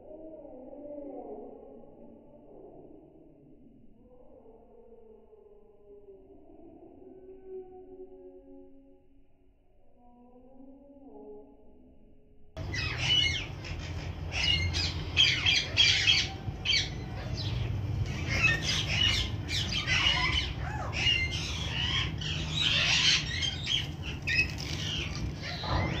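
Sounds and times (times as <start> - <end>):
low steady rumble: 12.6 - 26.0
parrots squawking: 12.6 - 26.0.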